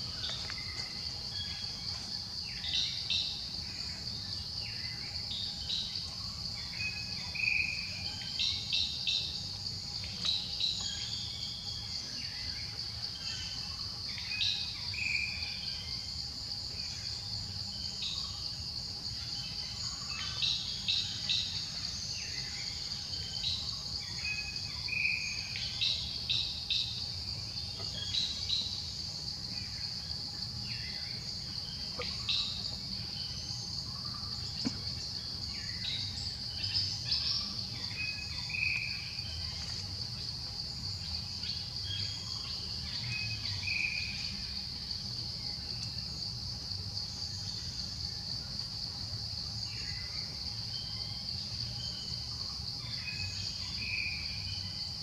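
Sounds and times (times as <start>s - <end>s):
insects droning in trees: 0.0s - 55.0s.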